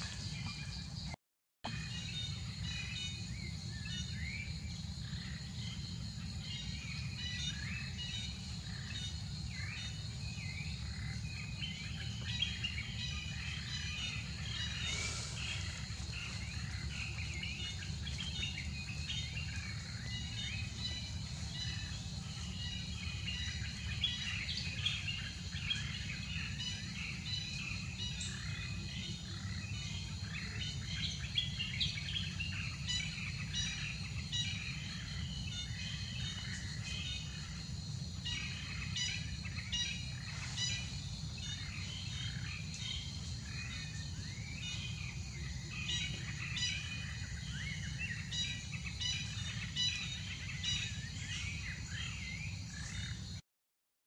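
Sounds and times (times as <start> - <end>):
bird chirps: 0.0 - 37.6
high insect drone: 1.7 - 53.4.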